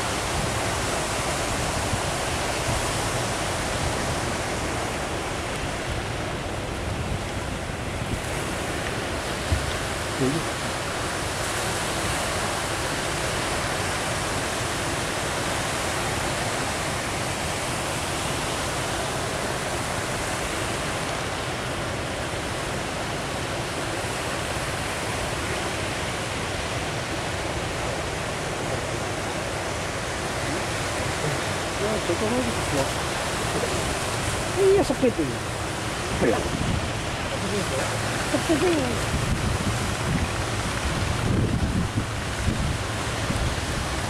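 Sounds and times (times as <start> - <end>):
ocean surf breaking: 0.0 - 44.0.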